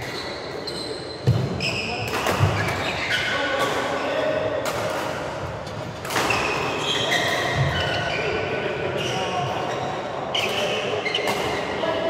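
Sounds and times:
shoe squeaks on court floor: 0.0 - 3.5, 6.3 - 11.6.

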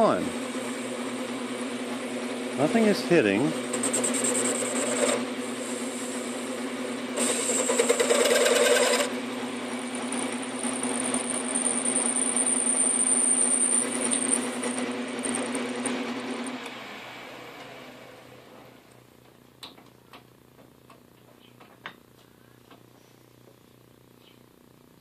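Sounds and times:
lathe humming: 0.0 - 17.3
thin high whine: 10.6 - 15.6.

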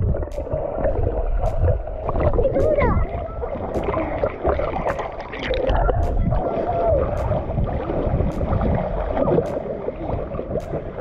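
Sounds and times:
sharp splashes: 0.0 - 11.0
water rumble on microphone: 0.0 - 11.0
water sloshing and lapping: 0.0 - 11.0.

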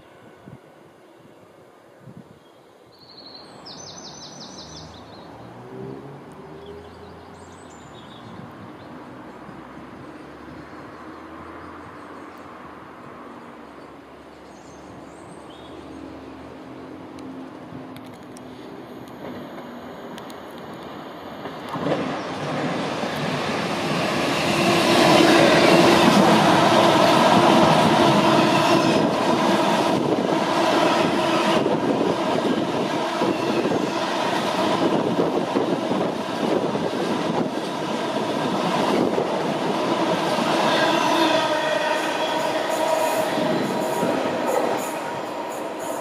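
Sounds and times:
diesel train engine: 16.2 - 46.0.

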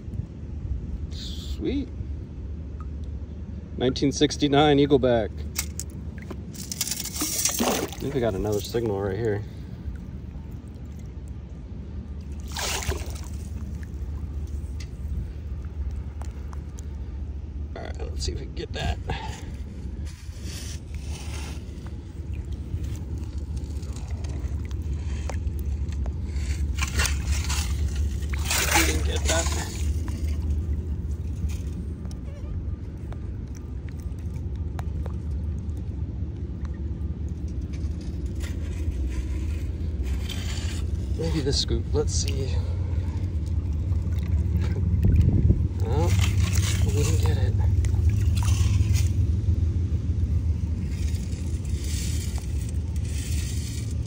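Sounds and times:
steady low rumble: 0.0 - 54.0
river water sloshing: 5.4 - 17.7, 19.0 - 54.0
water splash: 6.2 - 8.9, 12.2 - 14.8, 26.6 - 31.7, 43.4 - 49.3
scoop digging in gravel: 6.6 - 9.4, 19.3 - 30.6, 37.6 - 41.7, 45.8 - 49.2, 50.8 - 54.0.

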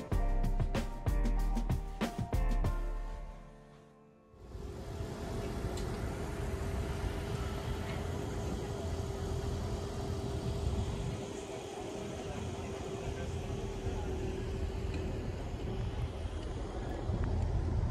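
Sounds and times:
low traffic rumble: 4.4 - 17.9
vehicle engine running: 4.4 - 17.9.

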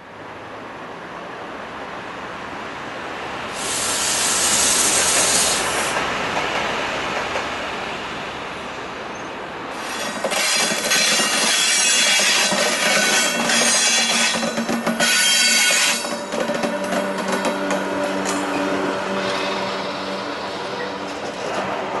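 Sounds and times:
train passing rumble: 0.0 - 22.0
loud hiss: 3.5 - 6.0, 9.7 - 10.7.

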